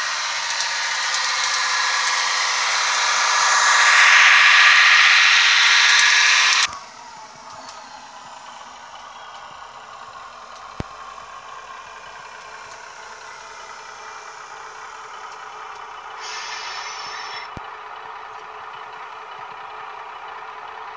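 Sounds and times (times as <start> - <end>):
model train diesel engine sound: 0.0 - 20.9
brief hiss: 16.2 - 17.5.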